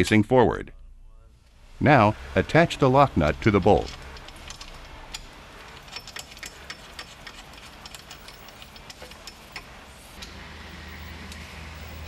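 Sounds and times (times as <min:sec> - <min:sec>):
nut spinning onto bolt clicking: 0:03.3 - 0:10.3.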